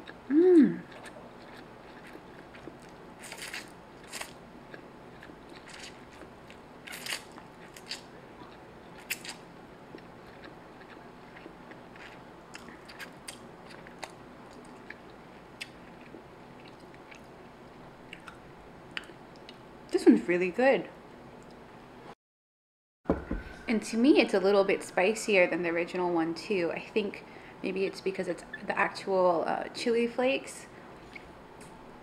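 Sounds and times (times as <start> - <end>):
chewing: 0.8 - 17.3, 18.1 - 18.4.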